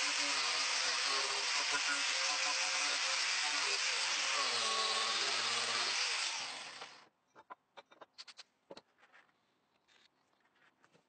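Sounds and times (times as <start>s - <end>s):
electric power tool humming: 0.0s - 7.0s.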